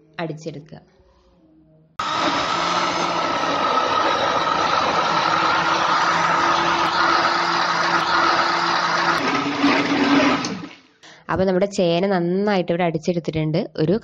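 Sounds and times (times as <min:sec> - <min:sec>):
mixer grinder motor whine: 0:02.0 - 0:10.9
thick mix churning: 0:02.0 - 0:10.9.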